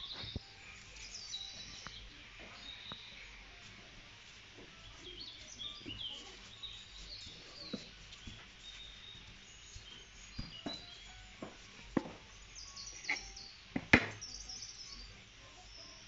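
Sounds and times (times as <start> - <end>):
birds chirping: 0.0 - 16.0
dough knocking on wooden board: 10.4 - 12.2, 13.8 - 14.2.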